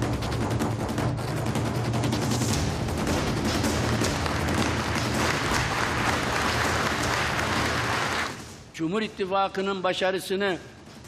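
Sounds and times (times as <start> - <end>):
crowd applauding: 3.6 - 8.6.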